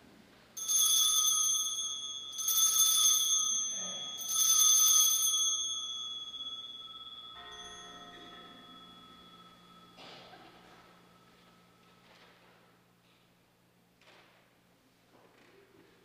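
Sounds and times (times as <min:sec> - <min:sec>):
altar bell ringing: 0:00.6 - 0:12.0.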